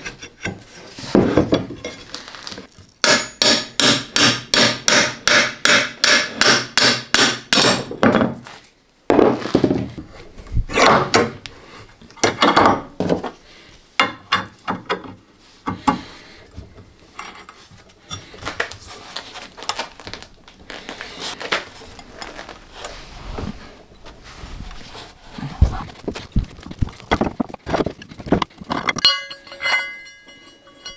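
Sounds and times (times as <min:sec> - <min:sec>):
tool clatter: 0:25.9 - 0:30.9.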